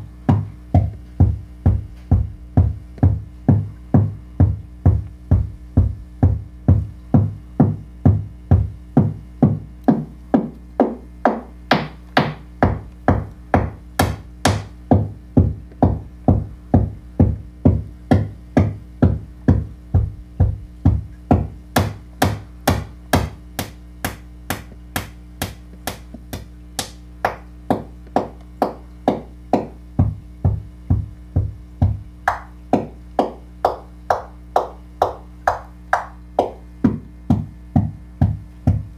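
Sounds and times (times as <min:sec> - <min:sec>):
deep electronic drum hits: 0:00.0 - 0:26.0, 0:29.1 - 0:33.0.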